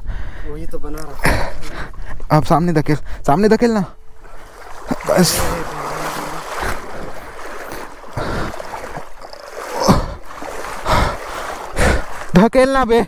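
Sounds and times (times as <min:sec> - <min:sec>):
water and mud sloshing: 0:04.0 - 0:13.0.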